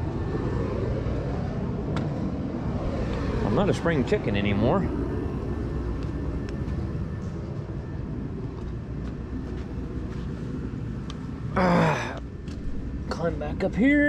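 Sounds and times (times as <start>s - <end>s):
shop heater roaring: 0.0s - 14.0s
man grunting: 11.6s - 12.2s.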